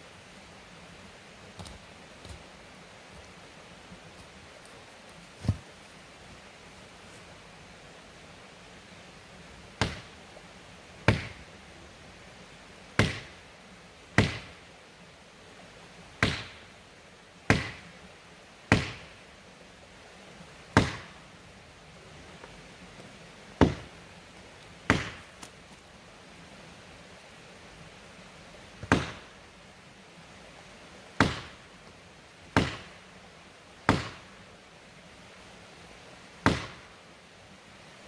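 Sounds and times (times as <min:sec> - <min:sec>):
axe chopping wood: 0:09.8 - 0:10.1, 0:11.0 - 0:11.4, 0:13.0 - 0:13.4, 0:14.2 - 0:14.5, 0:16.2 - 0:16.6, 0:17.5 - 0:17.8, 0:18.7 - 0:19.1, 0:20.8 - 0:21.2, 0:23.6 - 0:23.9, 0:24.9 - 0:25.3, 0:28.8 - 0:29.3, 0:31.2 - 0:31.6, 0:32.6 - 0:32.9, 0:33.9 - 0:34.3, 0:36.4 - 0:36.8.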